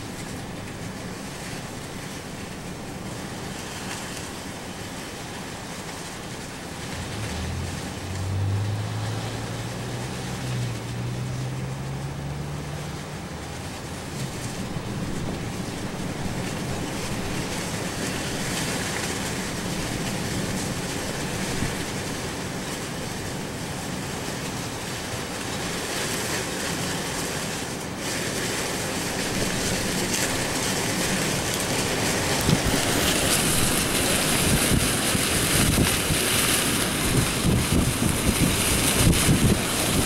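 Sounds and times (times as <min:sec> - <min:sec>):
wind buffeting microphone: 0:05.7 - 0:24.9, 0:27.8 - 0:40.0
strong storm wind blowing: 0:28.8 - 0:40.0.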